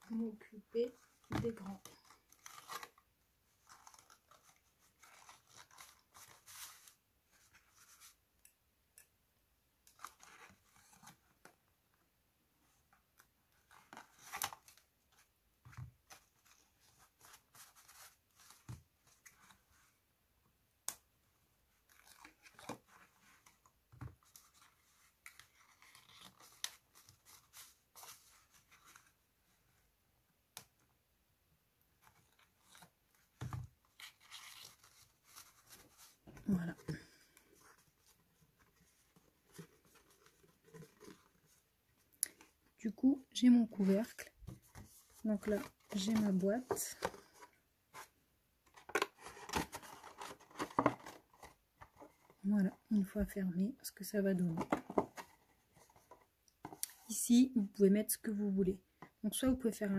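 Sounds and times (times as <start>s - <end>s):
paper rustling and crinkling: 0.1s - 8.2s, 21.7s - 29.8s, 32.0s - 42.6s, 43.7s - 48.1s, 48.7s - 52.5s, 54.4s - 57.2s.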